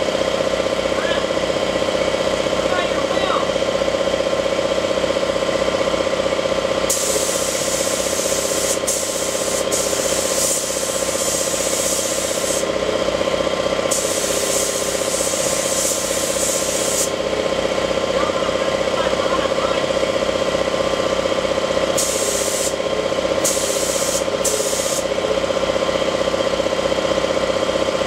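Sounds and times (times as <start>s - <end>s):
air compressor pulsing: 0.0s - 28.0s
paint spray gun hissing: 6.9s - 12.7s, 13.9s - 17.2s, 21.9s - 22.8s, 23.4s - 25.1s.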